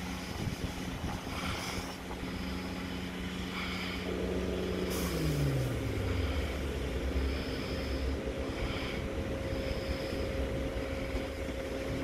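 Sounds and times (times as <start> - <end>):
electric train humming: 0.0 - 12.0
air hiss: 4.7 - 10.4.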